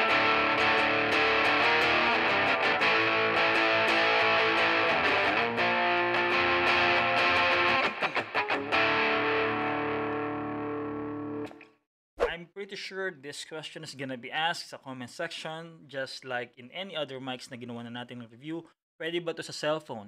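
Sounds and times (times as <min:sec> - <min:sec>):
distorted electric guitar: 0:00.0 - 0:11.6.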